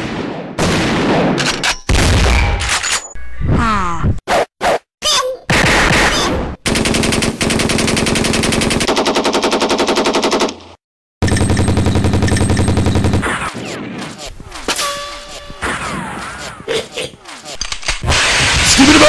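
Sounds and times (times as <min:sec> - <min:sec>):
cartoon machine-gun fire: 0:05.5 - 0:09.4, 0:11.2 - 0:14.3, 0:18.0 - 0:19.0.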